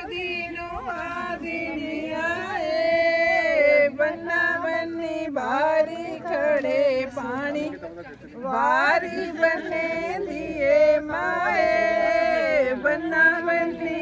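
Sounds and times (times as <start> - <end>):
voices singing folk song: 0.0 - 14.0.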